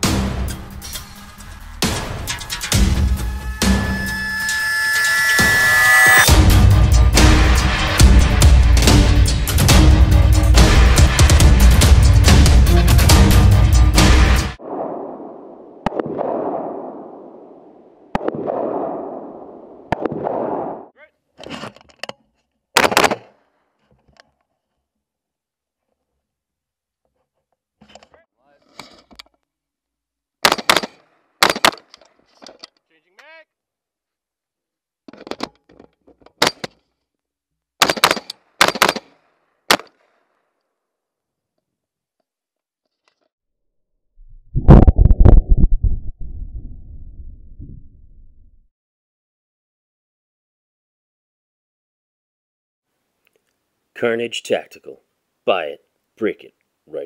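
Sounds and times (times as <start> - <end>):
rifle gunshots: 22.8 - 23.3
rifle shots: 22.8 - 23.3, 30.4 - 31.8, 37.8 - 40.0.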